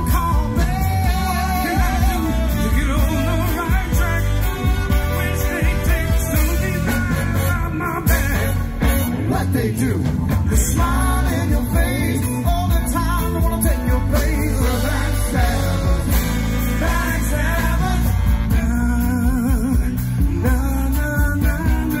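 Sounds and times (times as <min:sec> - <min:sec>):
lead singer: 0:00.0 - 0:22.0
live band playing: 0:00.0 - 0:22.0
saxophone horn section: 0:00.2 - 0:09.6, 0:14.1 - 0:20.0.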